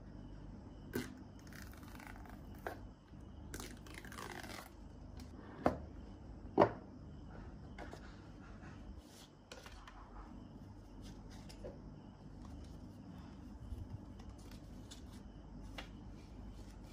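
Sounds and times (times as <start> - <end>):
paper rustling: 12.4 - 16.9.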